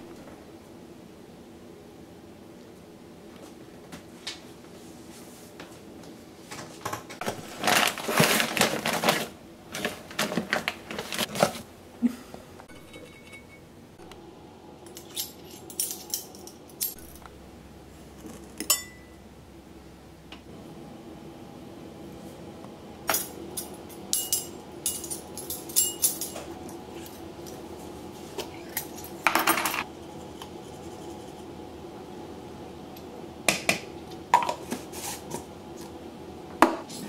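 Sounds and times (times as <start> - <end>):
paper bag rustling and crinkling: 7.2 - 11.7
metal measuring cups clinking: 12.7 - 13.6, 24.2 - 26.4.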